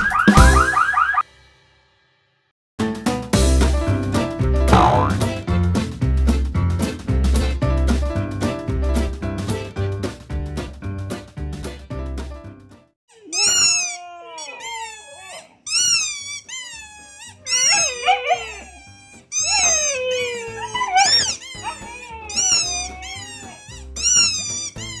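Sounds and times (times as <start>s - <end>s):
background music with low beat: 3.6s - 8.8s
huskies howling calls: 17.4s - 24.3s.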